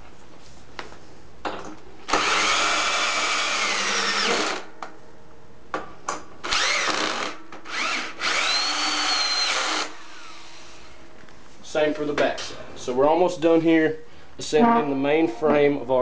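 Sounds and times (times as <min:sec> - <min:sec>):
cordless drill whining: 0:06.4 - 0:10.7.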